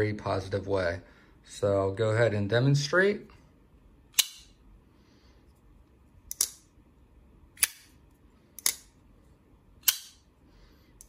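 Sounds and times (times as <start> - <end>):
folding knife blade snapping: 4.1 - 4.5, 6.3 - 6.7, 7.6 - 8.0, 9.8 - 10.2.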